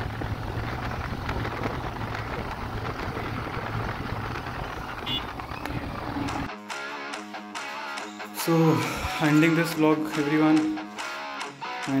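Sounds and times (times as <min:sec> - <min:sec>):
motorcycle engine running: 0:00.0 - 0:06.5.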